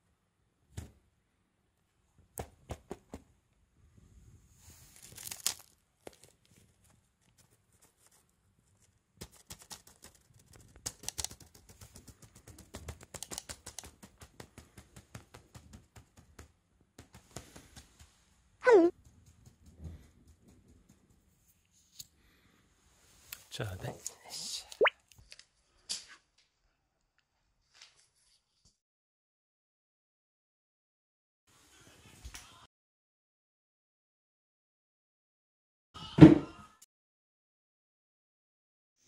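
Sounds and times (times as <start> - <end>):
cat claws scratching fabric: 6.3 - 16.2.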